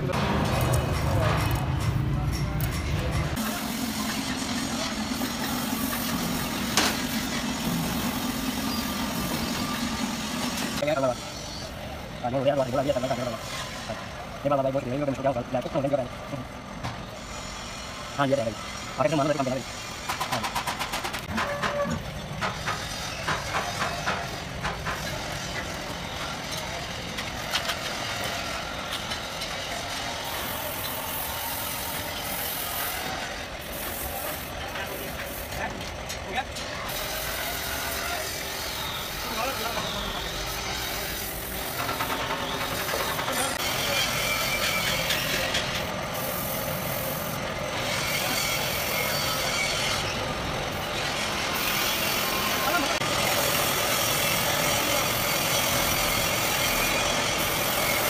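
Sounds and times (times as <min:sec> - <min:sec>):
steady mechanical noise: 0:00.0 - 0:58.0
air compressor hum: 0:02.9 - 0:26.2, 0:26.8 - 0:58.0
spray gun hissing: 0:30.5 - 0:35.5, 0:46.1 - 0:47.4.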